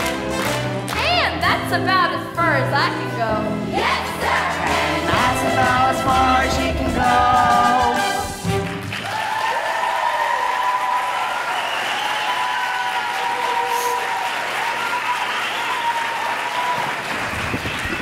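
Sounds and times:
audience applauding and cheering: 0.0s - 1.1s, 7.8s - 18.0s.

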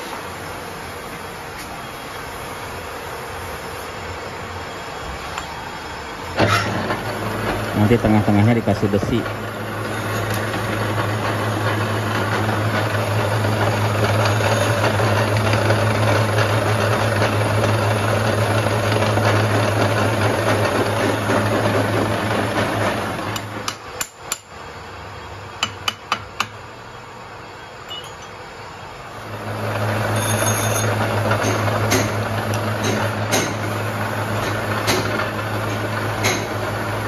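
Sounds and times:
lathe motor humming: 2.7s - 23.7s, 29.1s - 37.0s
lathe tool cutting metal: 6.4s - 23.7s, 29.3s - 37.0s
sharp metallic clicks and knocks: 34.4s - 36.6s.

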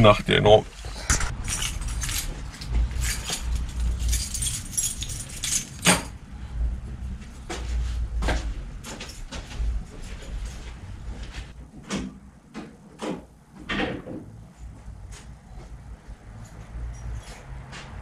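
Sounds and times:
bicycle metallic rattling: 1.0s - 6.2s.

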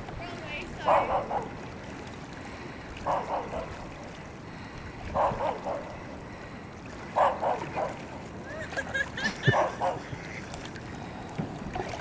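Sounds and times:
dog barking: 0.9s - 1.5s, 3.1s - 3.7s, 5.2s - 5.8s, 7.2s - 8.0s, 9.5s - 10.0s.

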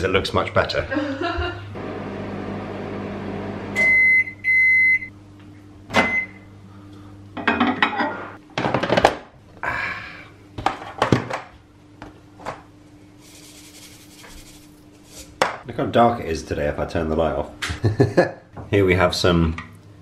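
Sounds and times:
microwave beep: 2.3s - 5.2s, 5.9s - 6.5s.

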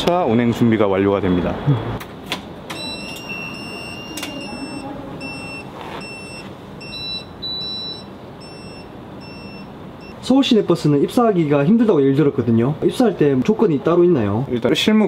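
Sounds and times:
electronic beeping: 2.7s - 10.2s.

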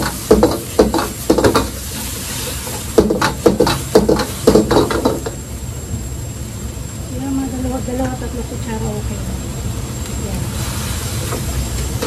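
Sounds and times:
frying sizzle: 0.0s - 5.7s, 10.3s - 12.0s
gas burner noise: 0.0s - 12.0s.

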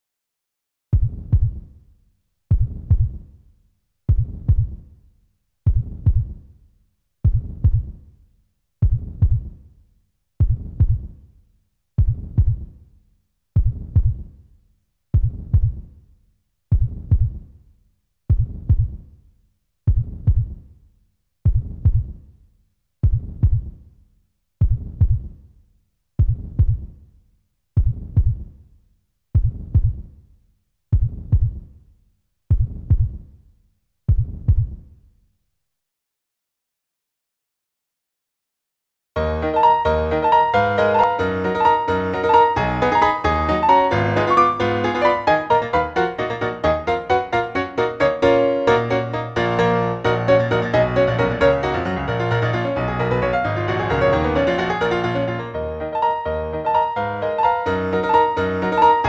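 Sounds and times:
heartbeat thumps: 0.9s - 1.7s, 2.5s - 3.3s, 4.1s - 4.8s, 5.7s - 6.4s, 7.2s - 8.0s, 8.8s - 9.6s, 10.4s - 11.2s, 12.0s - 12.8s, 13.6s - 14.3s, 15.2s - 15.9s, 16.7s - 17.4s, 18.3s - 19.0s, 19.9s - 20.6s, 21.5s - 22.2s, 23.0s - 23.8s, 24.6s - 25.4s, 26.2s - 26.9s, 27.8s - 28.5s, 29.4s - 30.1s, 30.9s - 31.7s, 32.5s - 33.3s, 34.1s - 34.8s.

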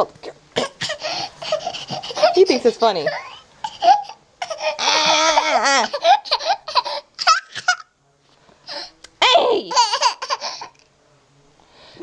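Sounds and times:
toddler laughing: 1.0s - 7.9s, 9.7s - 10.7s.

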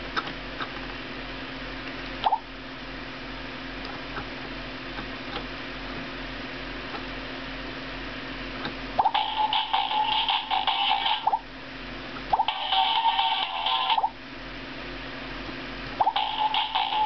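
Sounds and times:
electronic music from toy speaker: 9.0s - 11.4s, 12.3s - 14.2s, 16.0s - 17.0s.

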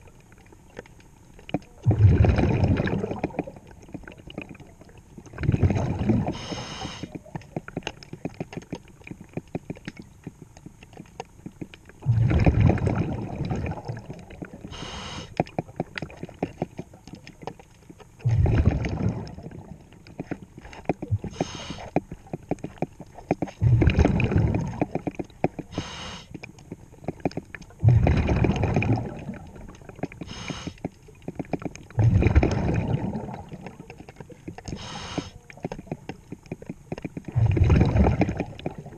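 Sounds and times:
diver exhaling bubbles underwater: 1.8s - 7.3s, 12.0s - 17.5s, 18.2s - 20.2s, 23.5s - 26.3s, 27.8s - 35.7s, 37.2s - 38.9s
regulator inhale hiss: 6.3s - 7.2s, 14.7s - 15.4s, 21.2s - 22.0s, 25.7s - 26.4s, 30.2s - 30.9s, 34.7s - 35.4s.

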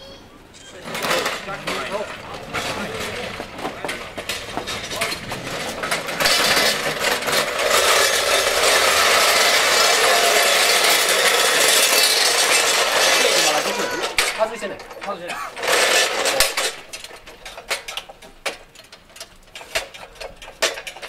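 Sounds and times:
wooden wheels grinding on asphalt: 0.7s - 21.0s
scattered knocks: 0.8s - 21.0s.

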